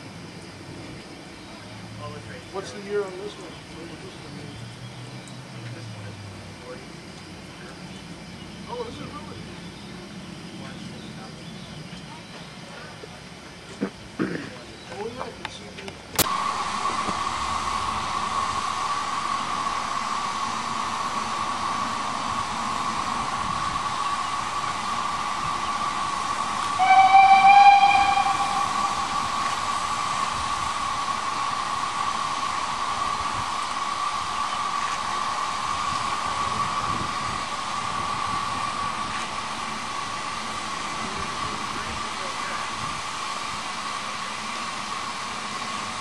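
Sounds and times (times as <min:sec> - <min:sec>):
steady high hum: 0:16.2 - 0:46.0
steam whistle blast: 0:26.6 - 0:30.4.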